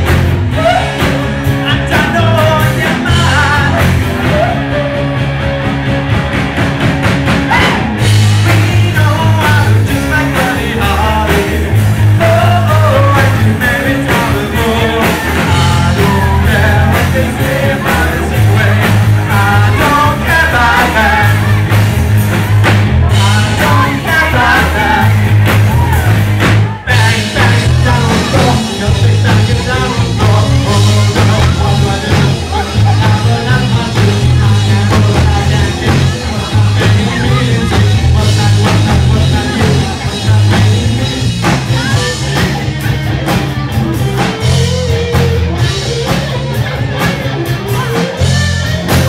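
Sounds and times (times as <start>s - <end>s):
man singing: 0.0s - 5.4s, 7.4s - 22.2s, 22.9s - 46.6s
rock band playing live: 0.0s - 49.0s.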